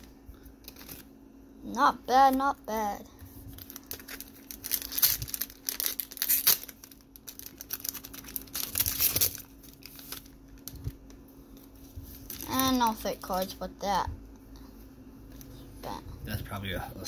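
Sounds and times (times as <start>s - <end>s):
foil wrapper crinkling and tearing: 0.6s - 1.1s, 3.5s - 13.5s.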